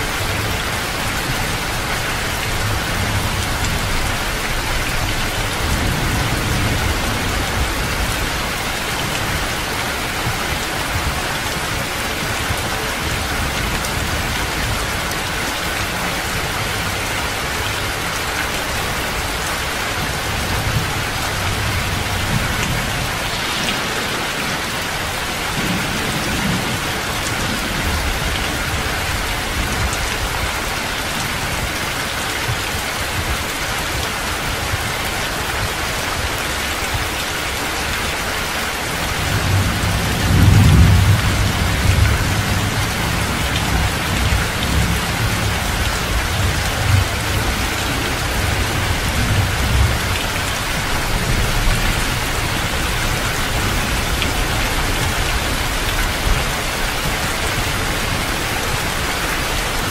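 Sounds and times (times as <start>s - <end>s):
heavy rain pouring: 0.0s - 59.9s
thunder rumbling: 2.5s - 11.4s, 20.2s - 30.6s, 39.0s - 58.9s.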